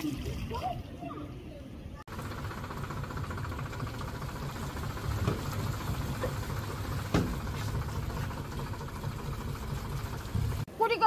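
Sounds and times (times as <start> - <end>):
tractor diesel engine running: 2.1 - 10.7
sharp knocks: 7.0 - 7.5.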